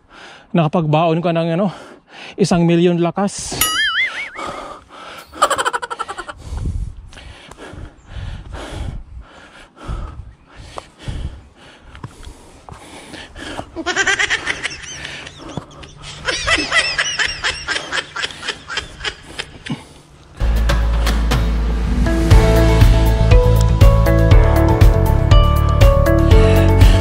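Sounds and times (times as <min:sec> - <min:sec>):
person breathing hard: 0:00.0 - 0:00.5, 0:04.4 - 0:16.2, 0:26.1 - 0:27.0
high-pitched giggle: 0:13.8 - 0:19.8.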